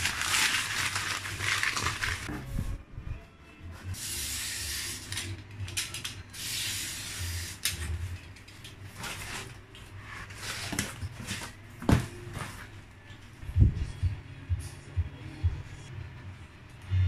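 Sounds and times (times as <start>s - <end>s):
cardboard tearing and scraping: 0.0s - 2.3s.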